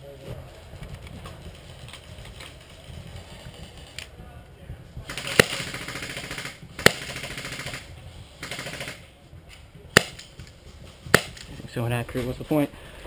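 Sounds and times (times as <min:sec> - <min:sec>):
fast rattling fire: 0:00.0 - 0:11.7
paintball pistol shots: 0:05.1 - 0:09.0, 0:09.9 - 0:10.3, 0:11.1 - 0:11.5.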